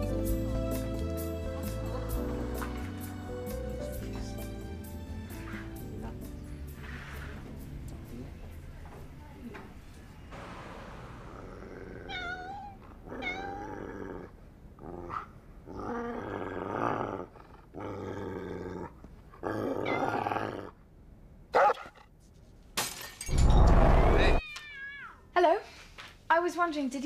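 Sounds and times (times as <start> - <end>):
loud heavy noise: 10.3 - 11.9
dog grumbling and whining: 11.4 - 20.8.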